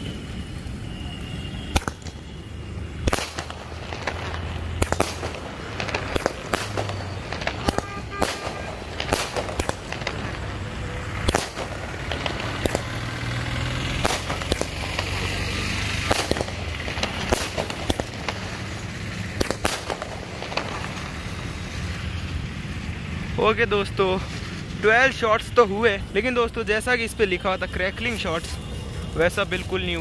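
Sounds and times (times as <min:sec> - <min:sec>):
firework shells banging: 0:01.7 - 0:13.2, 0:13.8 - 0:15.3, 0:15.9 - 0:21.2.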